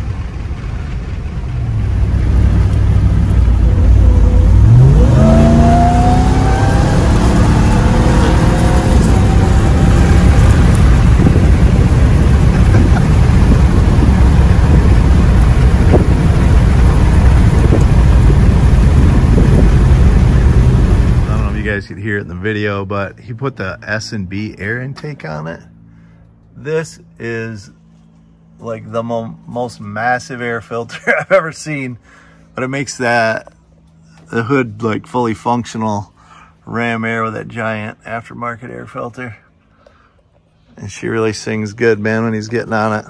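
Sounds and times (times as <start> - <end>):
truck engine accelerating: 0.0 - 39.4.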